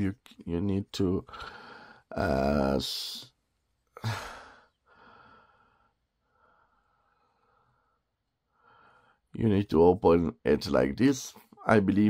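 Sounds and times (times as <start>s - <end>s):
person sighing: 3.9s - 5.6s.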